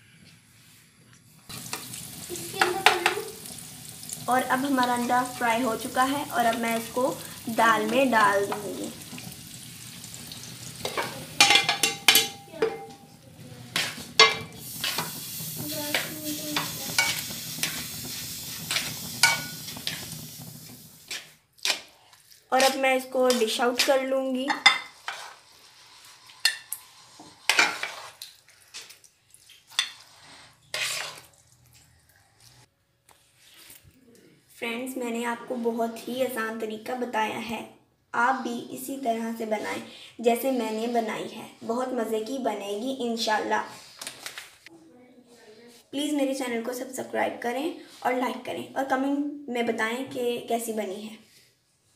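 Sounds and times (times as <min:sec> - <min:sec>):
light steady sizzle: 0:00.6 - 0:33.9
metal spoon scraping steel pot: 0:10.8 - 0:13.0, 0:18.6 - 0:20.0, 0:22.6 - 0:28.2, 0:29.7 - 0:31.4.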